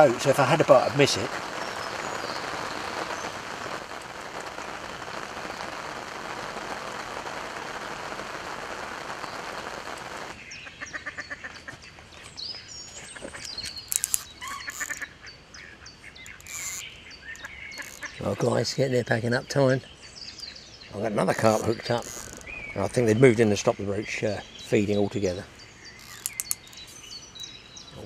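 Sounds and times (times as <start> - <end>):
small birds calling: 0.0 - 7.1, 8.9 - 28.0
heavy rain on lake and umbrella: 0.0 - 10.4, 21.4 - 22.6
ducks quacking: 10.6 - 11.8.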